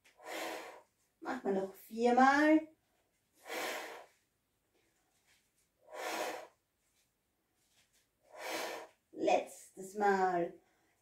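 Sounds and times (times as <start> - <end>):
woman breathing hard: 0.0 - 0.9, 5.8 - 6.6, 8.3 - 9.0.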